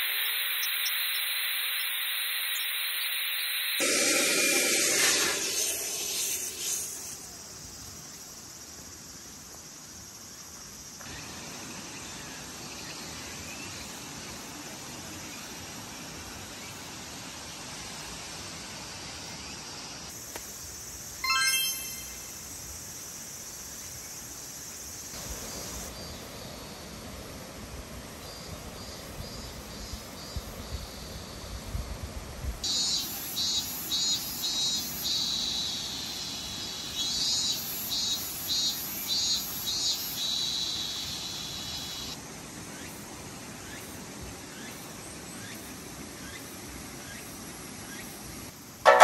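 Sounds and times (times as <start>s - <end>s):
faint outdoor hiss: 0.0s - 49.0s
air hissing from pump nozzle: 3.8s - 7.4s
brief high chirp: 21.2s - 22.4s.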